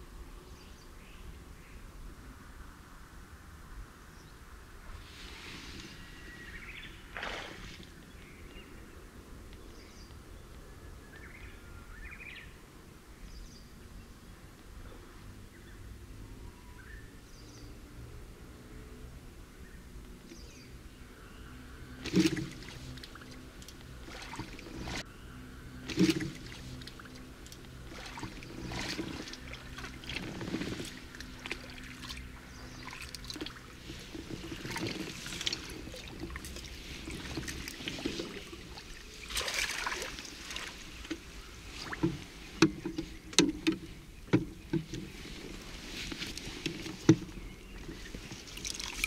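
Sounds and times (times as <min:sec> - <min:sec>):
water splashing from fish: 0:07.1 - 0:07.9, 0:21.9 - 0:25.0, 0:25.8 - 0:43.7, 0:46.2 - 0:49.0.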